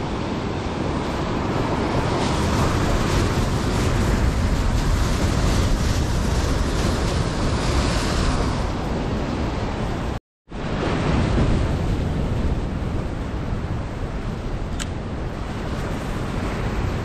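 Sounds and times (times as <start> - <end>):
wind rumbling on microphone: 0.0 - 17.0
surf breaking over rocks: 0.4 - 9.0.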